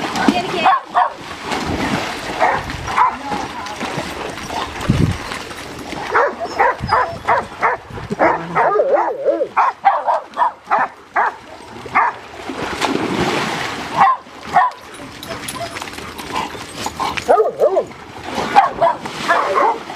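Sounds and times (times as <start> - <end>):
dog splashing into pool: 0.0 - 8.7, 9.5 - 19.9
dogs barking: 0.6 - 1.2, 2.3 - 3.3, 6.0 - 12.2, 13.9 - 19.9
dog whining: 6.2 - 9.6, 15.2 - 17.9.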